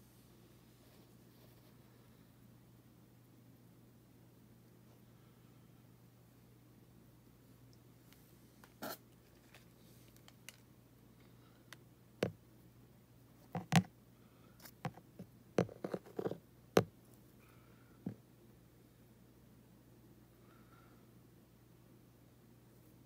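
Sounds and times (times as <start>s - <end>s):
handling clicks and taps: 13.5s - 13.9s.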